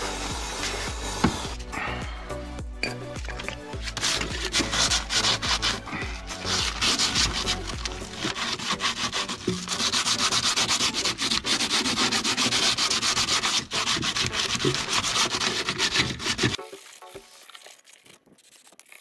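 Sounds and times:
sanding by hand on metal panels: 0:03.8 - 0:16.6.

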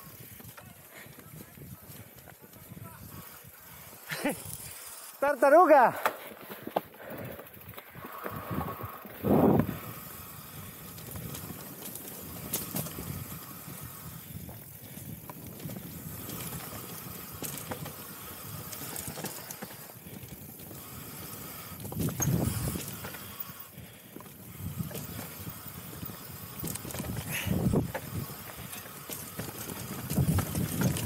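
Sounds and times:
bike tyres on dirt and stones: 0:00.0 - 0:31.0
bike knocks and rattles: 0:10.2 - 0:23.5, 0:24.2 - 0:31.0.

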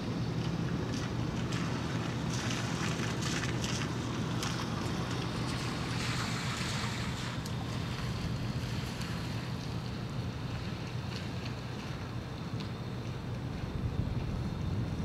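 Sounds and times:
steady low hum: 0:00.0 - 0:15.0
water lapping: 0:00.1 - 0:15.0
wind buffeting microphone: 0:13.0 - 0:15.0.

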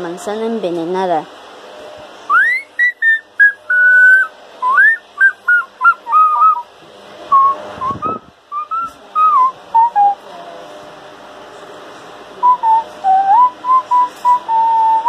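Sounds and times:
person whistling a tune: 0:02.3 - 0:06.6, 0:07.3 - 0:10.2, 0:12.4 - 0:15.0.

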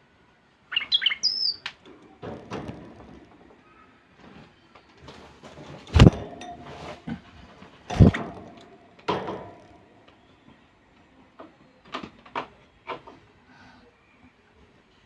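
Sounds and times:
wire birdcage knocking and rattling: 0:01.8 - 0:03.8, 0:05.1 - 0:10.1
heavy thump with ring: 0:05.9 - 0:07.1.

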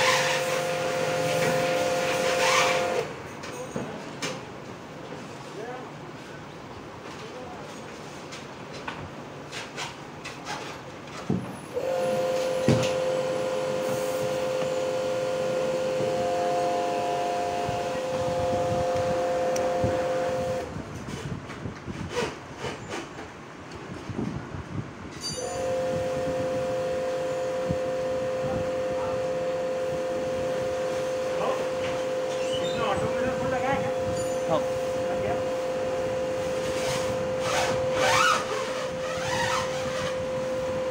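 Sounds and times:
two-note car warning tone: 0:11.8 - 0:20.6, 0:25.4 - 0:39.0.

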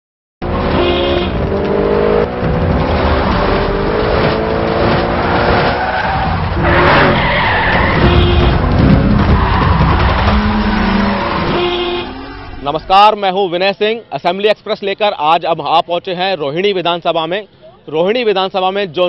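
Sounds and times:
racing car engine: 0:00.4 - 0:13.0
tyre screech: 0:05.6 - 0:12.9.

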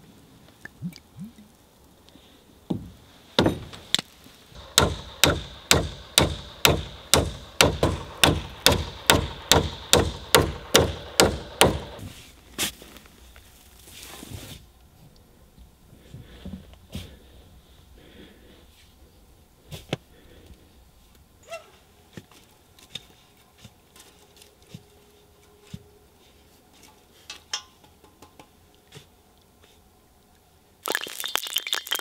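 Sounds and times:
hand tool striking wood: 0:04.6 - 0:12.0.

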